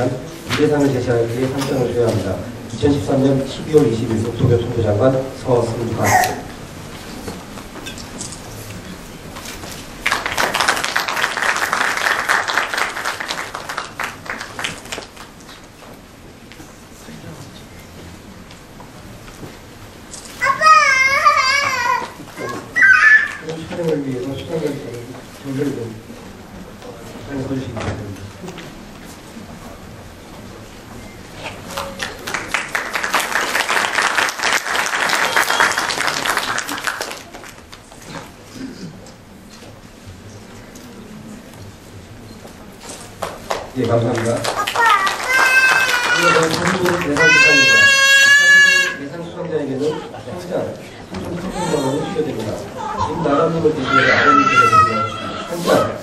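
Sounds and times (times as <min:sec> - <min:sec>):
audience applause: 0:09.9 - 0:15.4, 0:31.8 - 0:37.7, 0:43.2 - 0:48.9.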